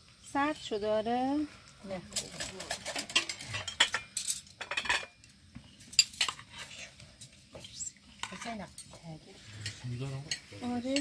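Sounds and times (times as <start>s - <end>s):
metal spoons clinking on pot and plates: 2.1s - 5.2s, 5.9s - 9.0s, 9.6s - 11.0s.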